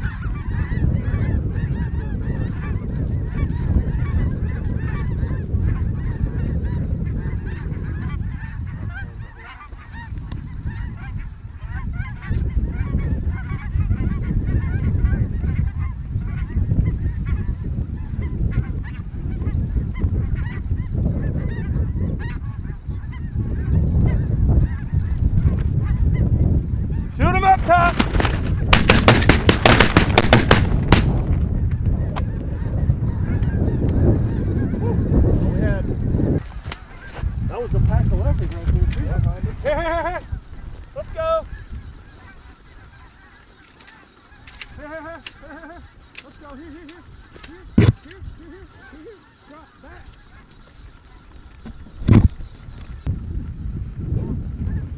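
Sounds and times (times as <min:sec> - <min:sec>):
close goose call: 0:00.0 - 0:31.1, 0:32.0 - 0:53.1
flock of geese honking: 0:00.0 - 0:54.9
shotgun blasts: 0:27.9 - 0:31.3.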